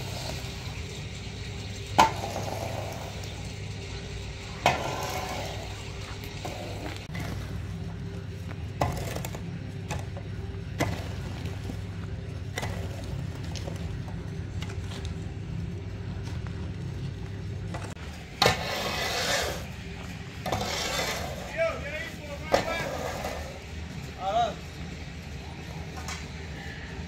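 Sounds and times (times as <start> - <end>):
steady low hum: 0.0 - 27.0
tool scraping: 2.0 - 15.2, 17.7 - 23.7
squeegee pushing wet concrete: 18.1 - 21.6.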